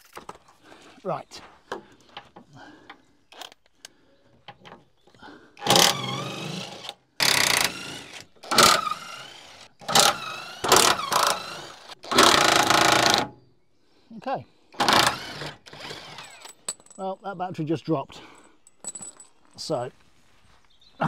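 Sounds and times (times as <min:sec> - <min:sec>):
impact wrench whining bursts: 0:05.6 - 0:13.3, 0:14.8 - 0:16.6.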